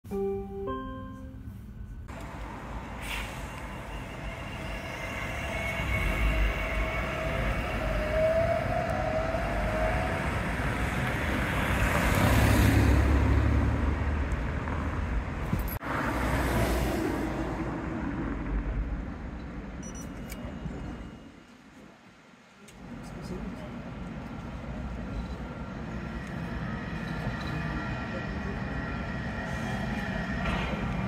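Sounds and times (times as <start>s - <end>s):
tram running past: 0.3s - 31.0s
steady traffic noise: 1.2s - 31.0s
car driving past: 10.3s - 15.0s.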